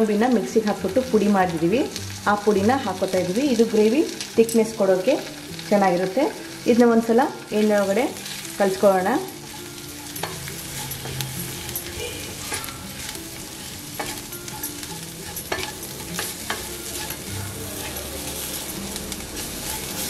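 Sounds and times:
food sizzling in oil: 0.0 - 20.0
spatula scraping a pan: 7.7 - 20.0.

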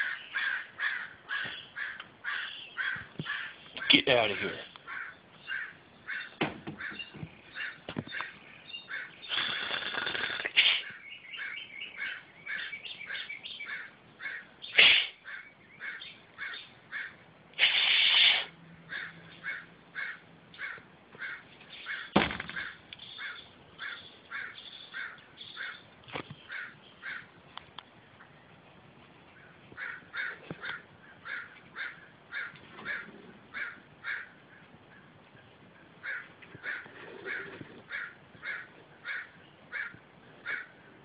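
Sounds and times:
crows cawing: 0.0 - 10.1, 11.0 - 14.6, 15.2 - 17.2, 18.9 - 27.4, 29.4 - 35.1, 36.0 - 41.0
sharp knocks: 22.1 - 22.7.

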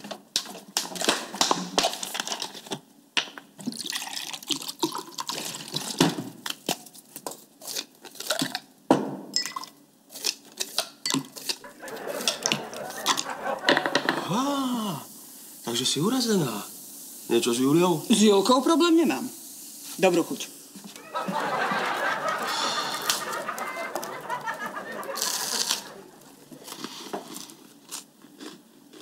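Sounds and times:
water pouring into a glass: 3.7 - 5.8.

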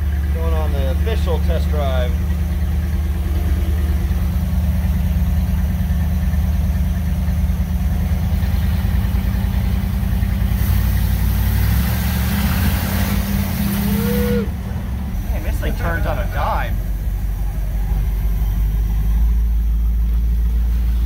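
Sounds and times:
van engine running: 0.0 - 21.0
tyres hissing on gravel: 10.4 - 14.4.

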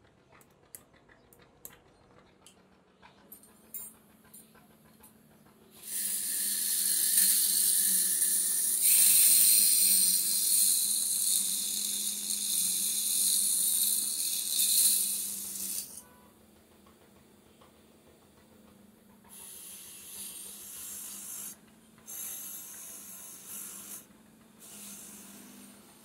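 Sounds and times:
grinder wheel grinding steel: 3.2 - 16.4, 19.0 - 26.0.

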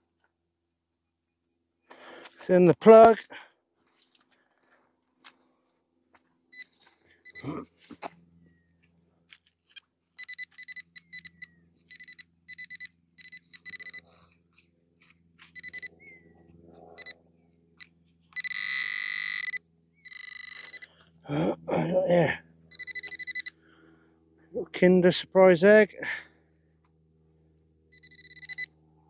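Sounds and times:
metal detector beeping: 6.5 - 7.6, 9.7 - 14.3, 15.0 - 16.2, 17.0 - 17.2, 17.8 - 21.1, 22.7 - 23.6, 27.9 - 28.8.

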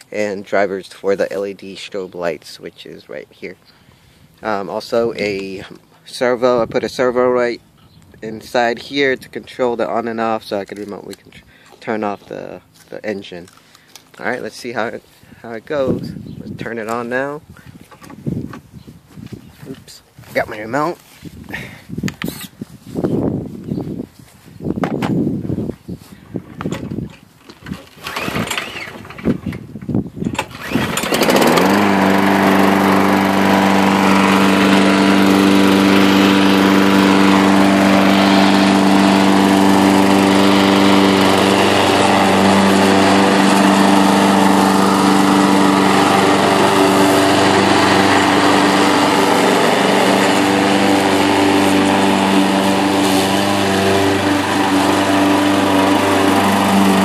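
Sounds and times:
lawnmower engine starting and running: 26.5 - 57.0.

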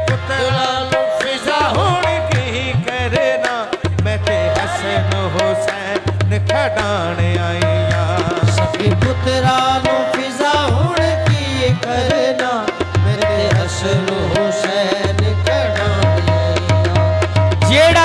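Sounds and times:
harmoniums playing: 0.0 - 18.0
people singing: 0.0 - 18.0
tabla playing: 0.0 - 18.0.

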